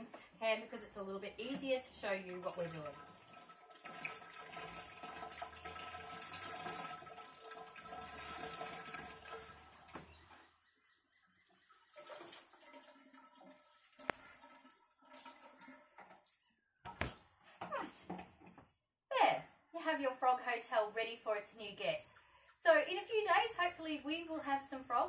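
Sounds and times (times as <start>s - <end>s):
water pouring into pipes: 1.8s - 10.1s, 11.6s - 16.5s.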